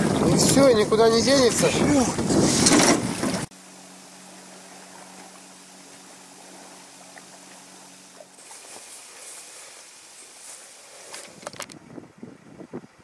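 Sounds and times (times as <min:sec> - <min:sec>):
wind on microphone: 0:00.0 - 0:03.5, 0:11.2 - 0:13.0
water sloshing around boat: 0:00.0 - 0:11.7
faint steady low hum: 0:03.5 - 0:11.4.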